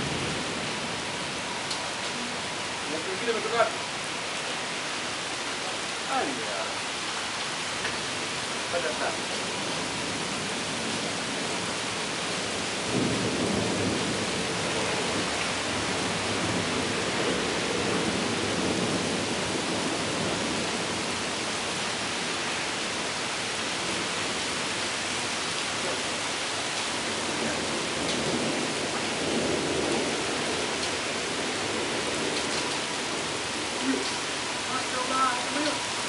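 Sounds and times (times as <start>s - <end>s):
heavy rain: 0.0s - 36.0s
thunder rumbling: 12.5s - 21.2s, 25.9s - 36.0s.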